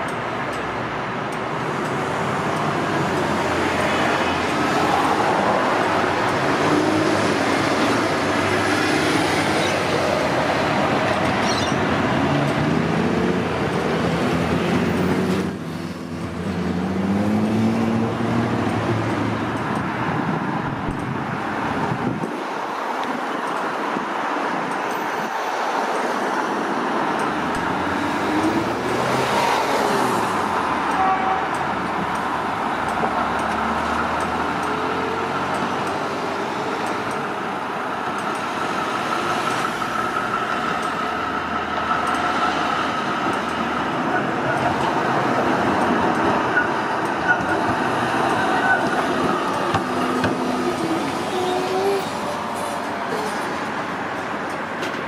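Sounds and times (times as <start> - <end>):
vehicles driving past: 0.0 - 55.0
engines revving and slowing: 1.9 - 19.8, 27.2 - 30.9, 31.8 - 53.8.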